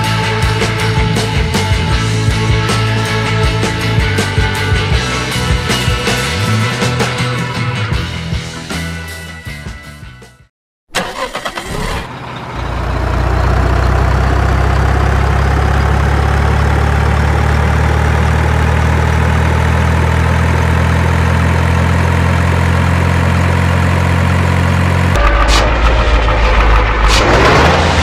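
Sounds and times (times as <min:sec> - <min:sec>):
truck engine cranking clicks: 0:10.9 - 0:12.1
truck engine idling: 0:10.9 - 0:27.8.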